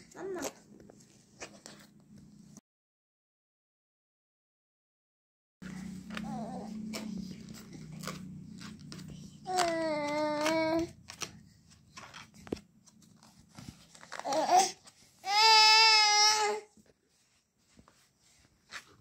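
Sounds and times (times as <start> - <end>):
paper card crinkling: 5.6 - 15.1
baby babbling: 6.2 - 7.0, 9.4 - 11.0, 14.1 - 16.7
baby wailing: 9.4 - 10.9, 14.2 - 16.7.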